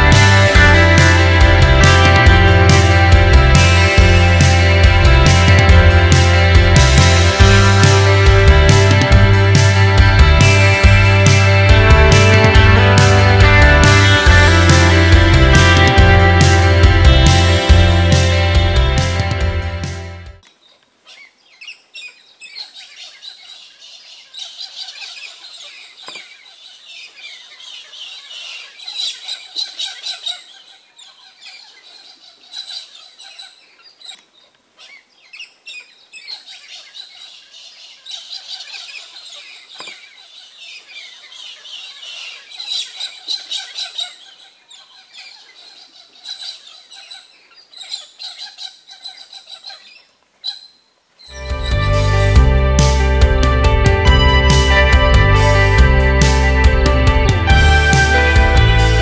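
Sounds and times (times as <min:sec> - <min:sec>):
small birds chirping: 0:20.4 - 0:53.5.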